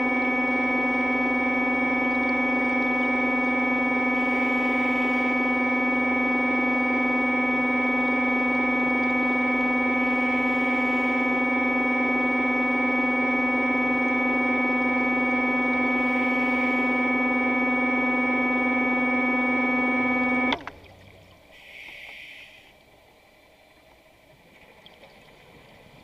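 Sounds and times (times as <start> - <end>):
faint underwater ambience: 0.0 - 26.0
exhaled bubbles hissing: 1.9 - 7.2, 7.9 - 12.6, 20.7 - 26.0.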